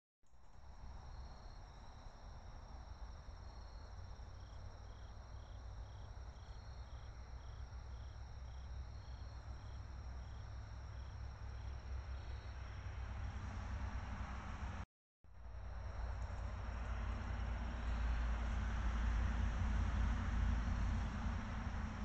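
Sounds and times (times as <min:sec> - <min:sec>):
insect higher call: 0:00.5 - 0:13.0, 0:15.4 - 0:19.2.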